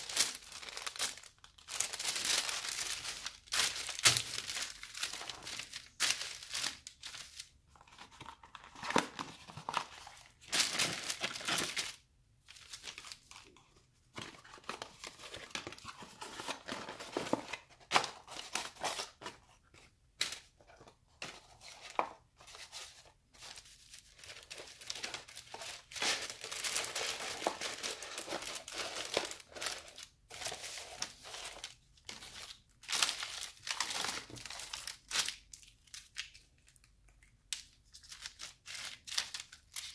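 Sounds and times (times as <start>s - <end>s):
paper packaging rustling: 0.0s - 36.4s.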